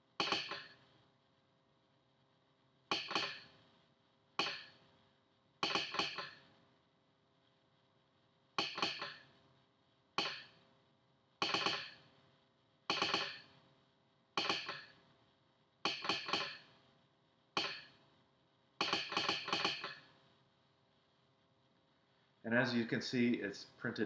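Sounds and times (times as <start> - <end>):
telegraph sounder clicking morse code: 5.6 - 6.3, 11.4 - 12.0, 12.9 - 13.5, 14.4 - 14.9, 15.8 - 16.6, 18.8 - 20.0.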